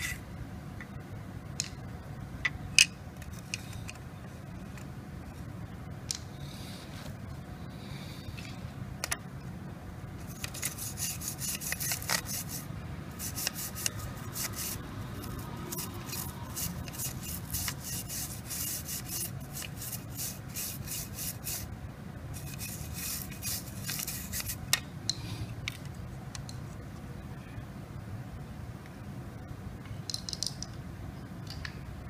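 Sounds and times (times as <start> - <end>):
scratchy rubbing on hard surface: 10.2 - 21.7, 22.4 - 24.6.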